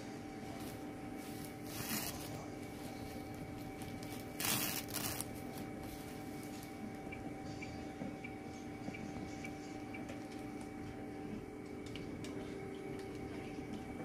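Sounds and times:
machine hum: 0:00.0 - 0:14.0
rustling and tearing: 0:00.6 - 0:06.7.

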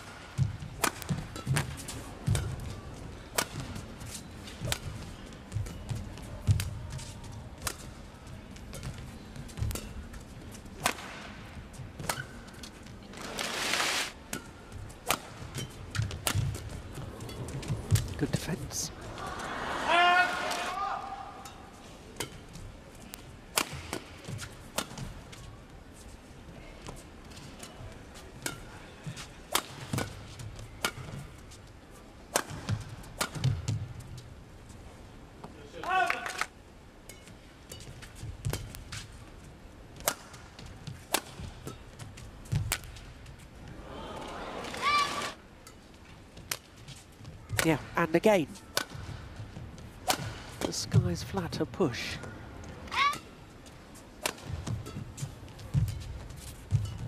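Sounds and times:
rackets striking shuttlecock: 0:00.1 - 0:03.8, 0:14.3 - 0:18.1, 0:22.2 - 0:25.1, 0:29.5 - 0:31.3, 0:32.3 - 0:33.8, 0:40.0 - 0:43.1, 0:48.6 - 0:50.7, 0:54.2 - 0:57.0.

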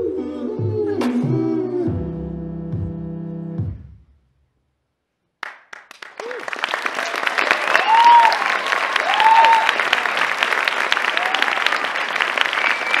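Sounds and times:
audience applauding: 0:05.4 - 0:13.0
shouted cheers: 0:06.2 - 0:13.0.

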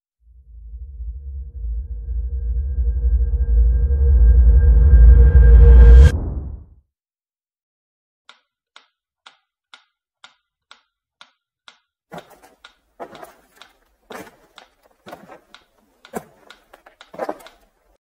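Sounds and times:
footsteps on gravel: 0:12.1 - 0:17.9.

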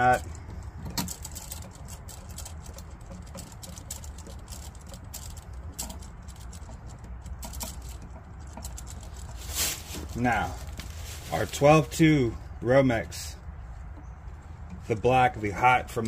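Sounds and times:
small plastic clicks and scraping: 0:00.0 - 0:10.9.

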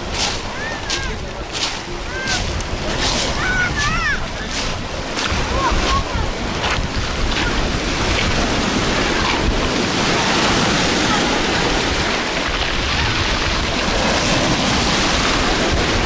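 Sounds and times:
surf breaking on pebble shore: 0:00.0 - 0:16.0.

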